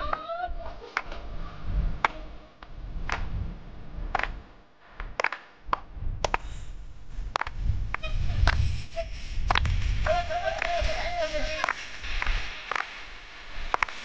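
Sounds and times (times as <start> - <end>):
low rumble: 0.0 - 14.0
hand claps: 1.0 - 1.2, 2.0 - 3.3, 4.1 - 4.4, 5.0 - 6.4, 7.4 - 8.6, 9.5 - 10.8, 11.6 - 13.0, 13.7 - 14.0.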